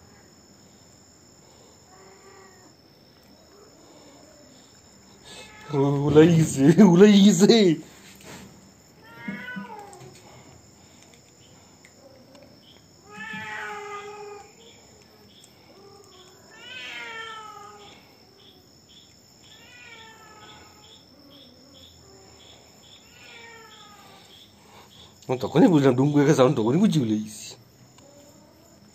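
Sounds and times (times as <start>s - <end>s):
cat meowing: 9.0s - 10.2s, 13.0s - 14.5s, 16.0s - 18.0s, 19.4s - 21.0s, 23.0s - 24.2s.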